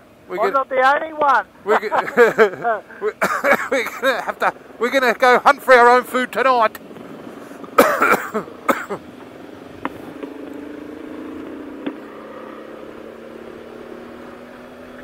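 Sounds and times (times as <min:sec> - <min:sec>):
motorcycle engine running: 0:03.5 - 0:15.0.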